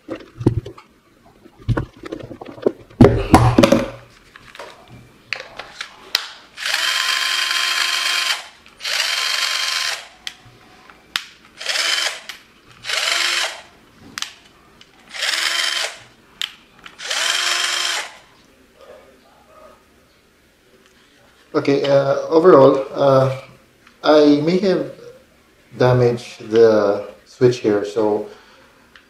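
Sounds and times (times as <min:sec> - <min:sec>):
drill motor whining: 0:06.6 - 0:10.1, 0:11.6 - 0:13.7, 0:15.1 - 0:16.0, 0:17.0 - 0:18.2.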